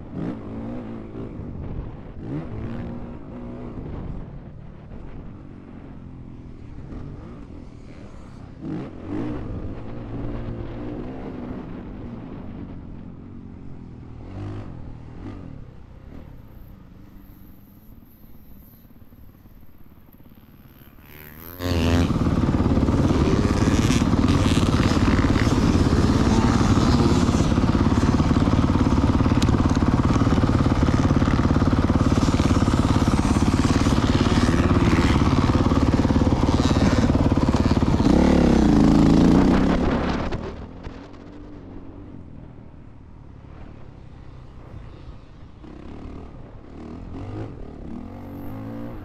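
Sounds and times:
dirt bike engine revving: 20.5s - 41.2s, 45.7s - 49.0s
wind noise: 21.7s - 45.0s.

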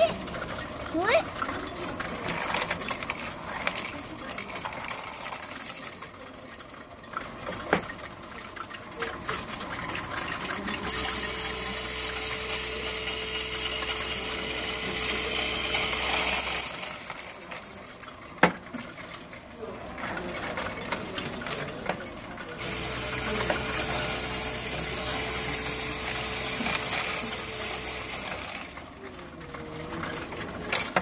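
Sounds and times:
coins rattling and clinking: 0.0s - 31.0s
machine motor humming: 10.9s - 16.8s, 22.6s - 28.8s.

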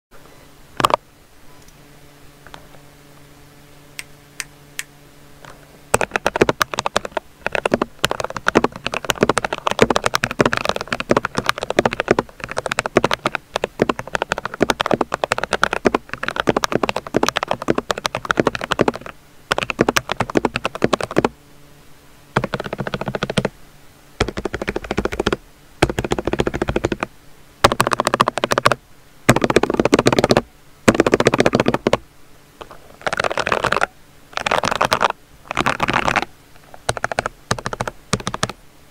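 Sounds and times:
mechanical keyboard key clacks: 36.8s - 38.6s.

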